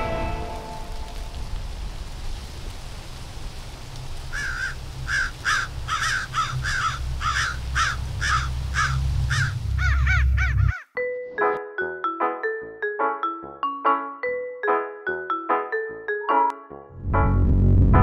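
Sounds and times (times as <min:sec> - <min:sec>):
crow cawing: 0:04.3 - 0:11.0
steady low rumble: 0:06.5 - 0:10.7, 0:17.0 - 0:18.0.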